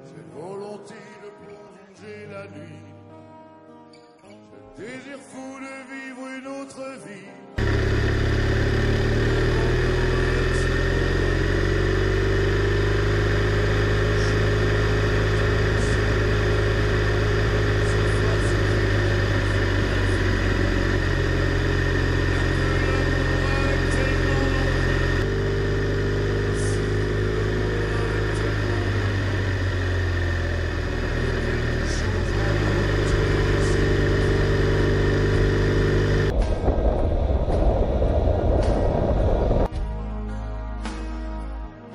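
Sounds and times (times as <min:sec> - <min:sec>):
motorcycle engine running: 0:07.6 - 0:39.7
wind noise: 0:36.3 - 0:39.7.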